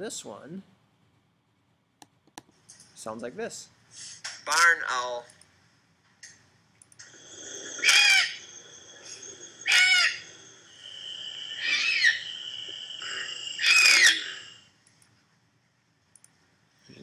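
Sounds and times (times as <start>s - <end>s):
barn owl screeching: 7.1s - 14.7s.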